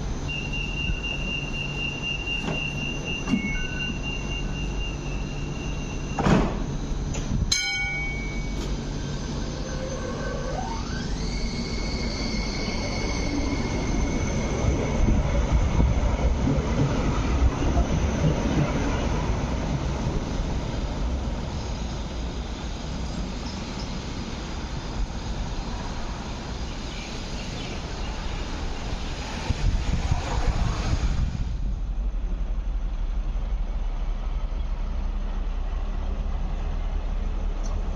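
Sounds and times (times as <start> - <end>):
light rail wheels rumbling on rails: 0.0 - 37.9.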